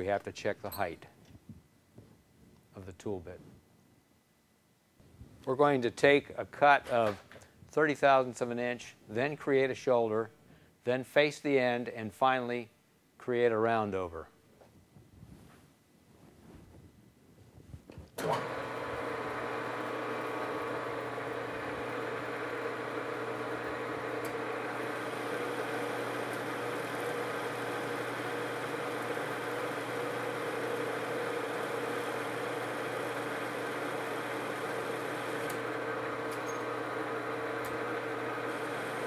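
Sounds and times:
metal lathe humming: 18.2 - 39.0.

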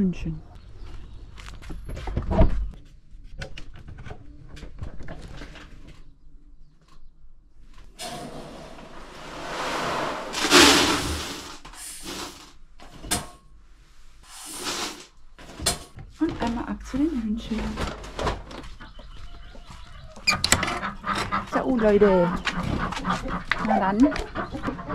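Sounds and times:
water pouring into bucket: 8.9 - 12.5, 14.3 - 15.1
buckets knocking and clattering: 10.2 - 12.5.

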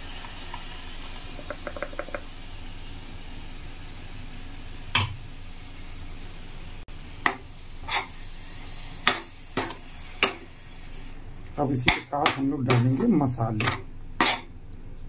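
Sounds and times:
low steady sizzle: 0.0 - 15.0
metal spatula knocking on pan: 11.9 - 12.9.

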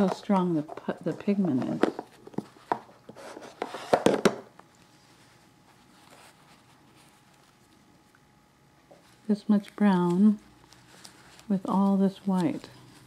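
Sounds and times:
paper towel rustle: 4.9 - 7.7, 9.0 - 13.0.

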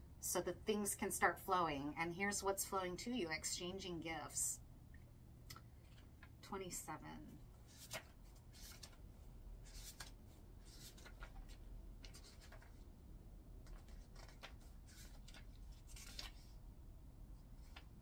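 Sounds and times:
low steady hum: 0.0 - 18.0
book pages rustling: 7.5 - 12.9, 13.6 - 16.6.

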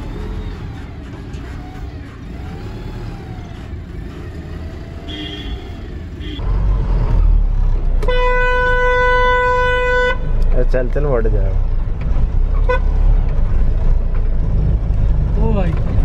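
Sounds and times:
truck diesel engine running: 0.0 - 6.7.

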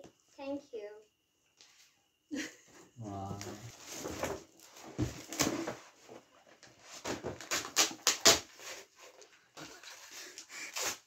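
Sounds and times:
paper and cardboard rustling: 3.4 - 11.0
sharp crackles of wrapping: 7.4 - 11.0.

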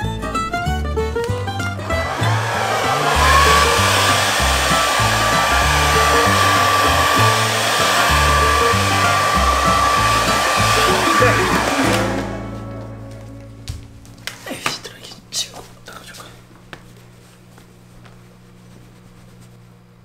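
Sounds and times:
hair dryer running: 1.8 - 12.6.

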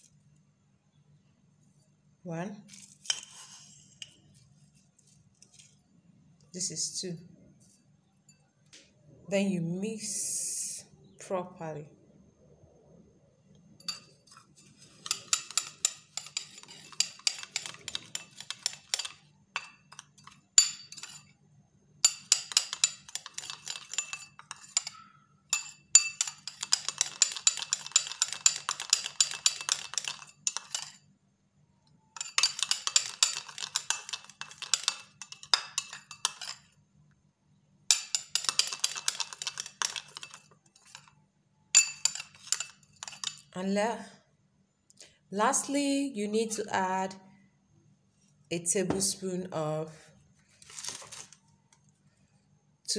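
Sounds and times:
spoon clinking and scraping glass: 2.7 - 4.3, 13.8 - 21.4, 22.0 - 31.0, 32.2 - 36.7, 37.9 - 41.1, 41.7 - 43.5.

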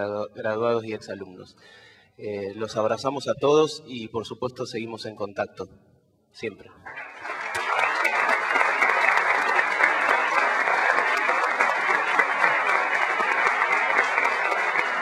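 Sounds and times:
audience applauding: 6.9 - 15.0.

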